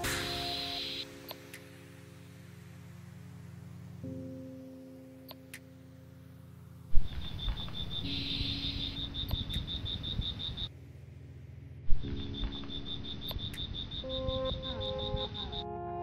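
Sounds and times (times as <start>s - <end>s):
high-pitched rhythmic chirping: 0.0s - 1.6s, 7.0s - 10.7s, 12.0s - 16.0s
faint background music: 0.0s - 16.0s.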